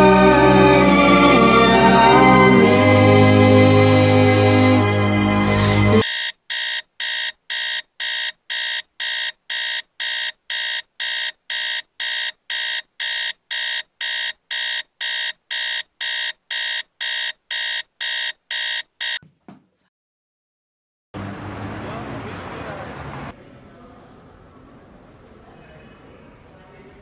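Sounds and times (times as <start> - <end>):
music: 0.0 - 6.0
smartphone alarm beeping: 6.0 - 19.2.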